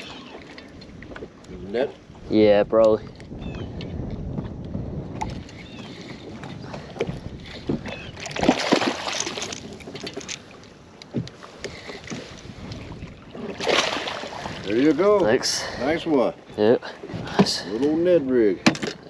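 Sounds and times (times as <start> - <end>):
wind on microphone: 0.0 - 10.2, 11.9 - 18.0
water lapping against a boat: 0.0 - 19.0
fish thrashing and splashing: 6.7 - 10.6, 11.8 - 15.0.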